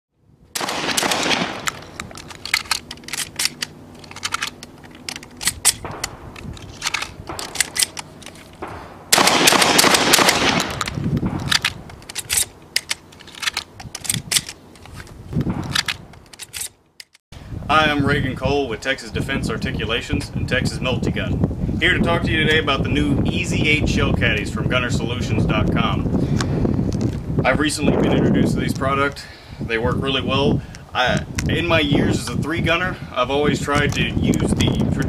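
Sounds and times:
shotgun fire: 0.6s - 1.7s, 8.6s - 11.4s.

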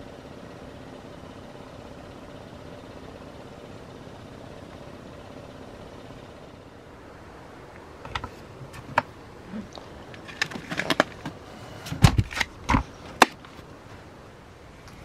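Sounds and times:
steady background hiss: 0.0s - 15.0s
objects clicking and knocking: 9.7s - 13.6s.

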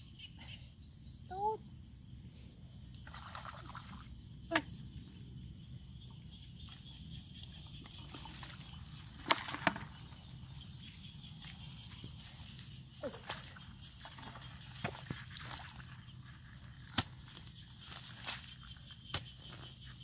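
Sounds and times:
water sloshing and splashing: 3.0s - 4.1s, 6.6s - 18.8s.

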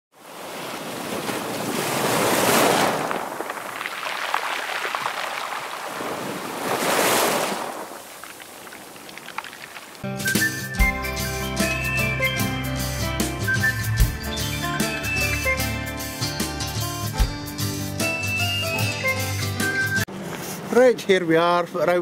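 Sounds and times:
sea waves surging onto shore: 0.2s - 10.1s
music with a beat: 10.1s - 20.1s.

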